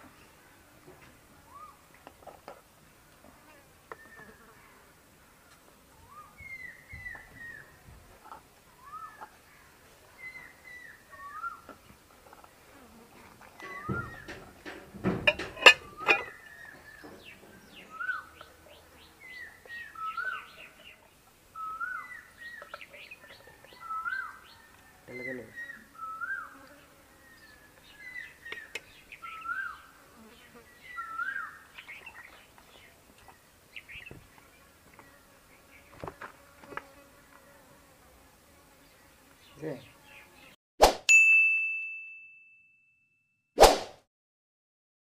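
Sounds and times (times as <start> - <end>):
sharp knocks: 13.6 - 16.3
bird whistling call: 25.6 - 26.5.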